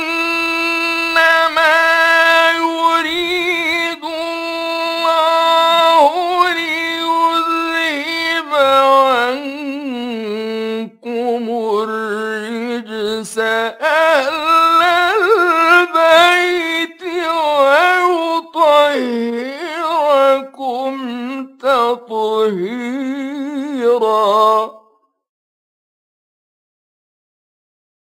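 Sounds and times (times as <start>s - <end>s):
man chanting melodically: 0.0s - 24.8s.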